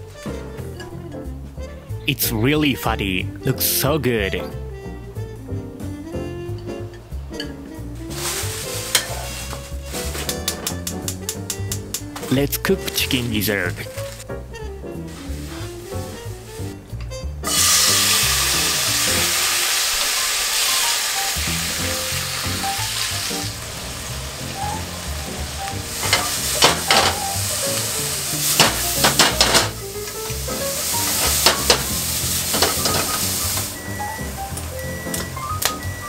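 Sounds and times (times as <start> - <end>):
food sizzling in frying pan: 8.0 - 11.2, 15.0 - 16.8, 17.4 - 36.0
chopsticks clicking against pan: 10.2 - 12.2.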